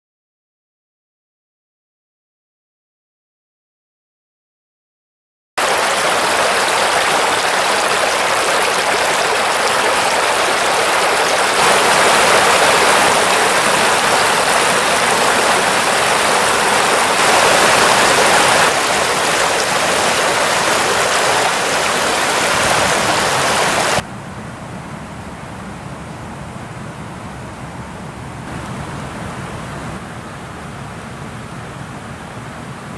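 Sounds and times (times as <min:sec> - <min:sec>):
water rushing over a stone weir: 0:05.6 - 0:24.0.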